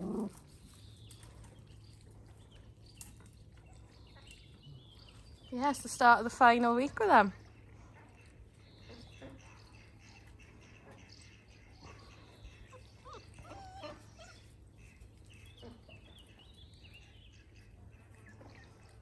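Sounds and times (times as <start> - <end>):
puppies whimpering and yipping: 11.8 - 15.1.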